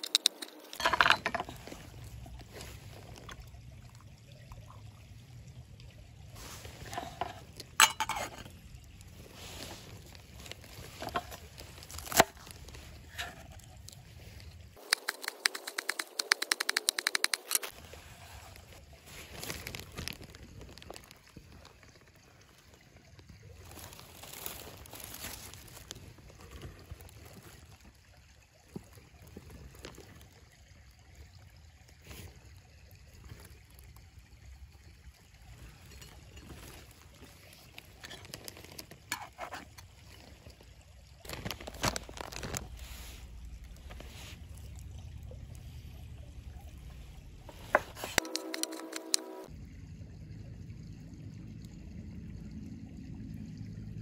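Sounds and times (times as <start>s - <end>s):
trickling water rush: 0.0s - 54.0s
rustles: 6.4s - 21.7s, 23.6s - 27.8s, 41.2s - 45.9s
small clicks: 14.8s - 17.7s, 48.1s - 49.5s.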